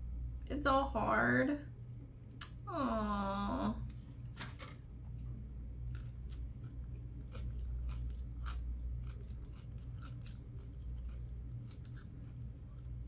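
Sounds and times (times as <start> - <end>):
steady low hum: 0.0 - 13.0
person chewing crunchy food: 5.0 - 13.0.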